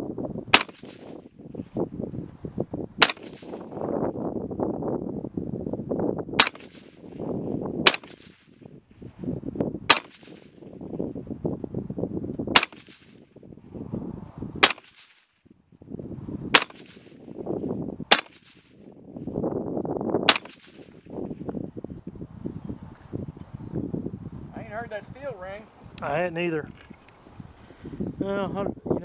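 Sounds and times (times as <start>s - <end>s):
suppressed pistol shots: 0.5s - 1.2s, 3.0s - 3.8s, 6.4s - 7.1s, 7.8s - 8.6s, 9.9s - 10.7s, 12.5s - 13.2s, 14.6s - 15.3s, 16.5s - 17.3s, 18.1s - 18.8s, 20.2s - 21.2s.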